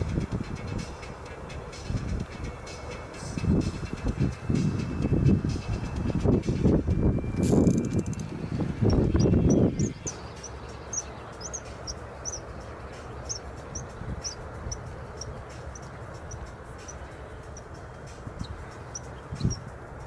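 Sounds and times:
low background rumble: 0:00.0 - 0:20.0
rustling buffeting noise: 0:00.0 - 0:20.0
small bird chirping: 0:07.7 - 0:19.8.

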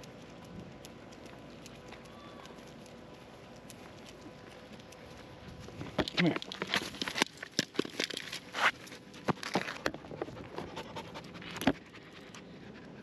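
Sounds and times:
handling clicks and rustles: 0:00.0 - 0:12.5
puppy panting: 0:08.8 - 0:13.0.

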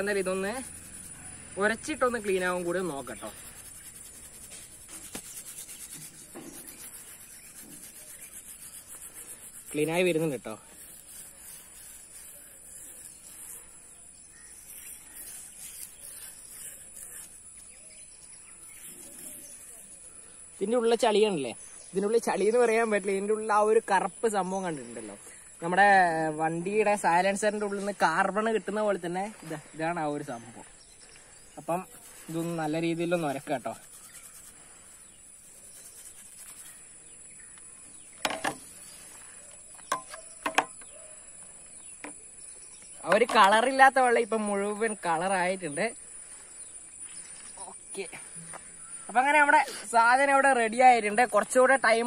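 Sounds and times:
steel wool scrubbing metal: 0:00.0 - 0:17.8, 0:31.6 - 0:36.9
faint bird chirps: 0:00.0 - 0:52.0
high-pitched insect drone: 0:00.0 - 0:52.0.

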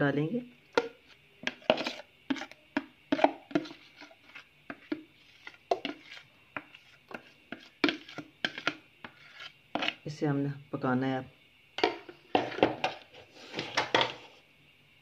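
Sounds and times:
metal spoon scraping and tapping: 0:00.7 - 0:10.0.

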